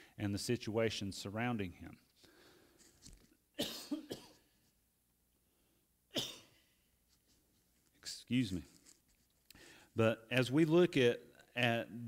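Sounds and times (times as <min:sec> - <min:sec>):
man coughing: 0:03.6 - 0:04.5, 0:06.1 - 0:06.6.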